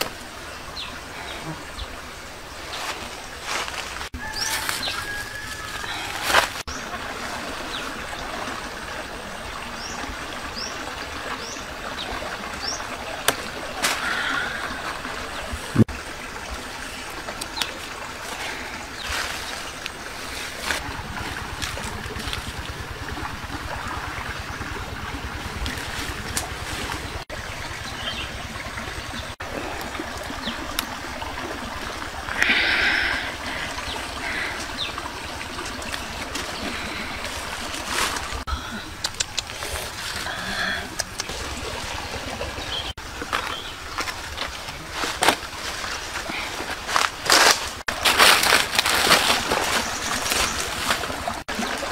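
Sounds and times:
creek trickling: 0.0 - 51.9
leaves and stems rustling: 2.6 - 8.0, 13.2 - 15.9, 16.8 - 24.0, 25.0 - 27.3, 32.2 - 41.8, 42.8 - 51.9.

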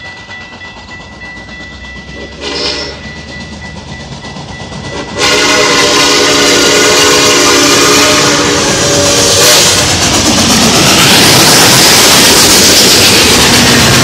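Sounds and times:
steam locomotive passing: 0.0 - 14.0
steam whistle blowing: 2.2 - 3.1, 4.9 - 10.0.

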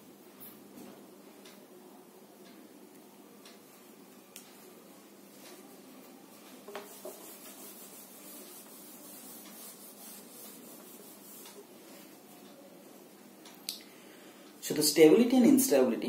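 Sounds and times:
eraser rubbing on whiteboard: 6.7 - 11.7.

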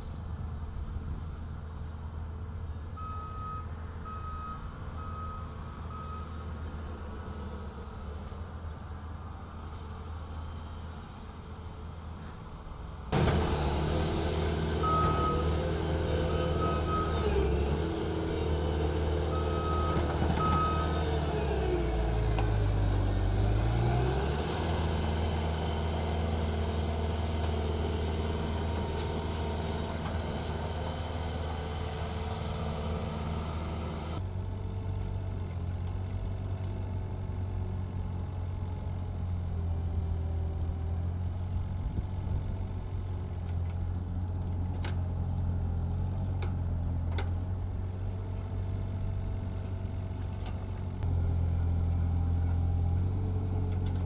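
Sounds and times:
track loader engine revving: 13.1 - 34.3, 50.8 - 54.0
mini excavator engine droning: 13.1 - 54.0.

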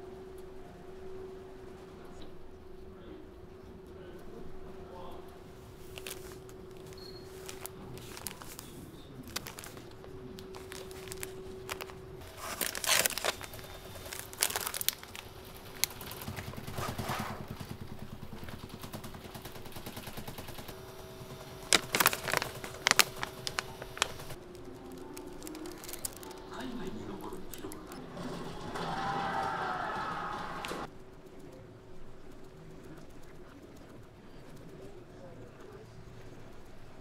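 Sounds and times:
steady hum: 0.0 - 37.0
plastic packaging crinkling: 5.7 - 17.6, 20.5 - 28.0.

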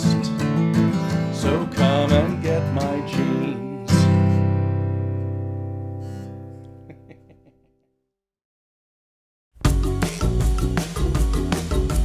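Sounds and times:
man singing: 0.0 - 4.3
strummed acoustic guitar: 0.0 - 6.7.

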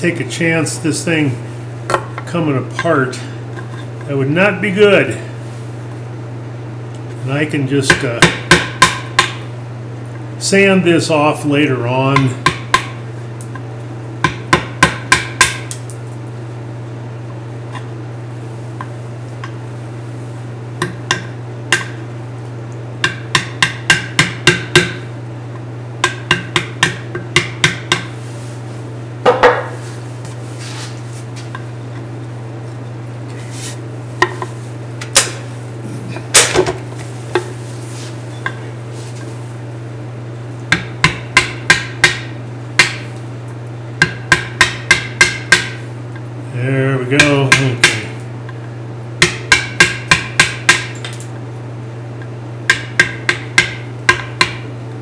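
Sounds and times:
steady low hum: 0.0 - 55.0
mallet tapping chisel handle: 44.0 - 45.8, 52.7 - 54.6.

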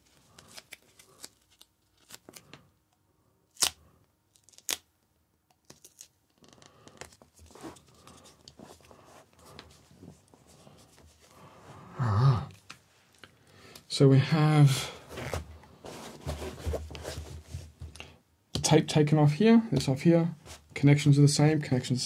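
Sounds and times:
tape crinkling and rubbing: 0.0 - 2.6, 3.5 - 4.9, 5.6 - 11.4.

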